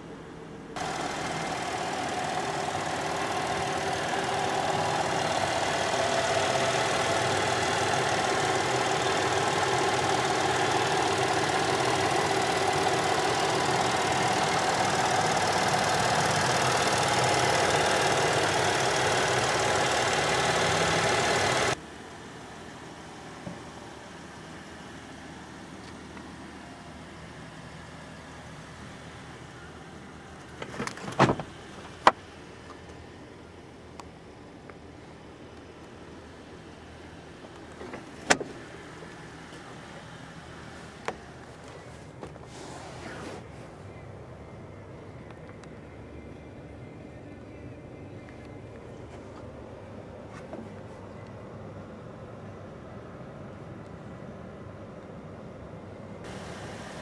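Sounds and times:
car engine idling hum: 0.0s - 57.0s
loud even hiss: 56.3s - 57.0s.

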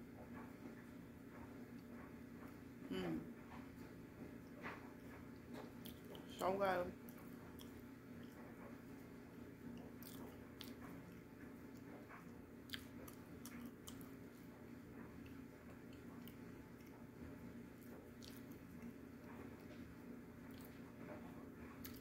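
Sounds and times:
crunchy chewing: 4.4s - 6.4s, 7.0s - 19.8s, 20.4s - 22.0s.

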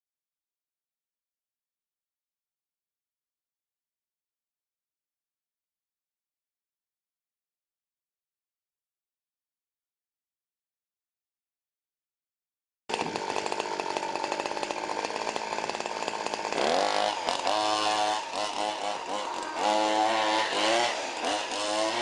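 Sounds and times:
small two-stroke engine revving: 12.9s - 22.0s.

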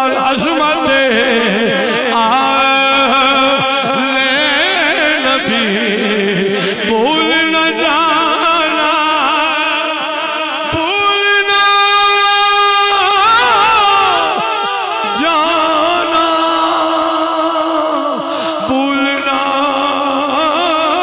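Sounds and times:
man singing into a microphone: 0.0s - 21.0s.

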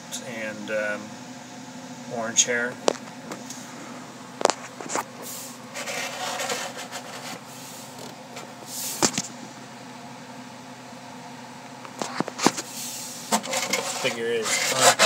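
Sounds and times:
background hum: 0.0s - 15.0s
plastic case rubbing and scraping: 5.7s - 8.2s, 13.3s - 15.0s.

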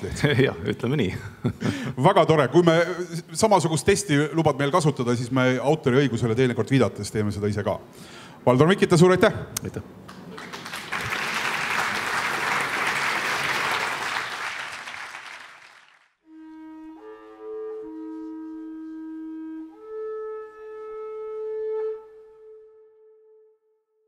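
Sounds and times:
audience applauding: 10.1s - 16.2s
soft music with long held notes: 16.3s - 23.5s.

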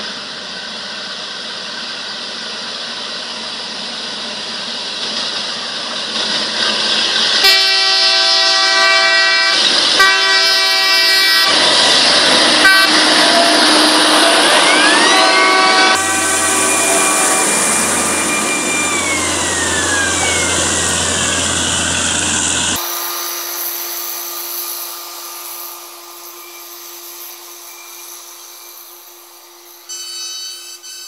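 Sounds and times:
long horn blast: 7.4s - 22.9s
maintenance vehicle engine: 10.9s - 29.6s.

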